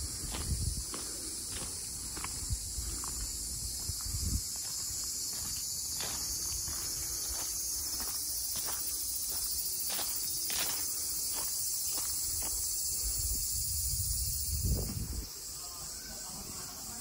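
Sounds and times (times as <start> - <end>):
cicadas chorus: 0.0 - 17.0
footsteps crunching on gravel: 0.2 - 12.8.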